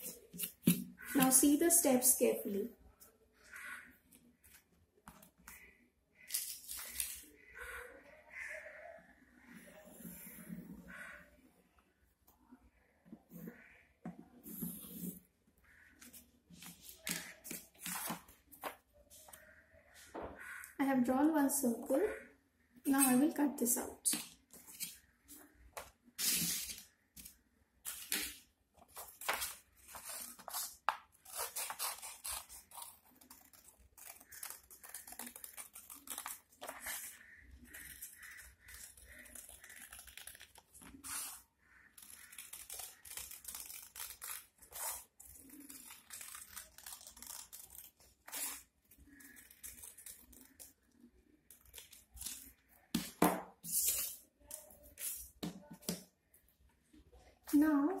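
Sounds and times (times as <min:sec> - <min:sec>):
paper rustling: 0:26.1 - 0:37.4
scissors snipping paper: 0:26.2 - 0:56.0.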